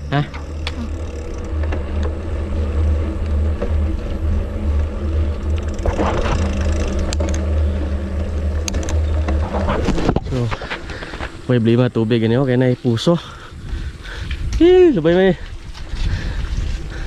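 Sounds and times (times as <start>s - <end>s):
bicycle tyres rolling on concrete: 0.0s - 17.0s
wind rumble on microphone: 0.5s - 11.5s, 12.3s - 17.0s.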